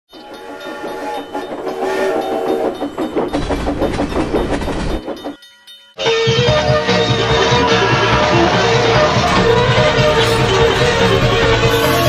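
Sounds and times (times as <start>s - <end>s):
train wheels clattering: 0.1s - 6.0s, 9.0s - 12.0s
train whistle: 0.2s - 2.8s, 7.2s - 12.0s.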